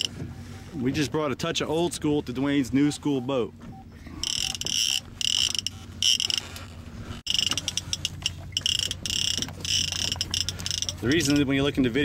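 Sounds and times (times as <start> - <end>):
fishing reel clicking: 4.2 - 6.6, 7.3 - 11.5.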